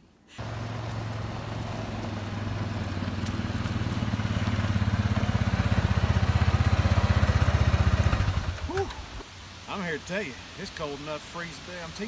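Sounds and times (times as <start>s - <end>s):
atv engine putter: 0.4s - 9.0s.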